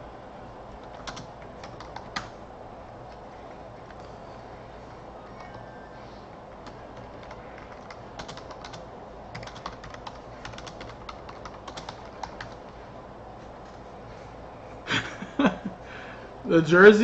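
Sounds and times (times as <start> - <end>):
typing on computer keyboard: 0.8 - 2.4, 6.6 - 12.6.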